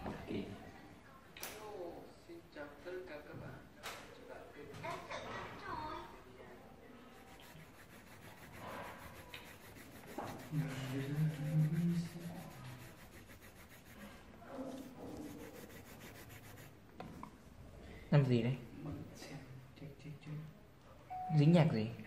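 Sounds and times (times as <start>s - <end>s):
pencil shading on paper: 7.0s - 16.8s.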